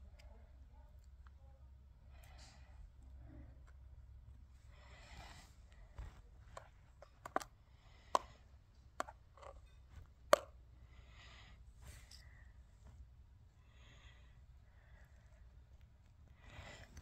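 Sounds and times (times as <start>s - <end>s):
soft rustling: 4.4s - 7.3s, 11.6s - 13.6s
tweezers clicking on plastic dish: 6.5s - 10.6s.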